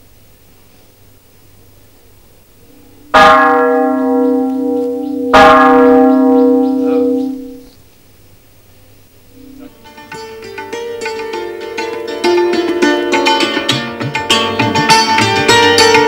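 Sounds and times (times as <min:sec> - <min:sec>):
large temple bell ringing: 0:02.7 - 0:07.7.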